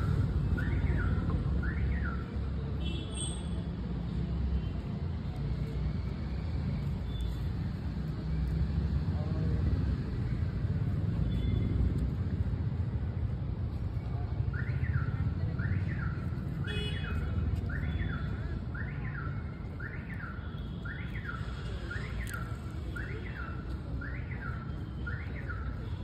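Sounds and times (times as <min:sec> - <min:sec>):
traffic rumble: 0:00.0 - 0:26.0
car alarm siren: 0:00.6 - 0:02.4, 0:17.6 - 0:26.0.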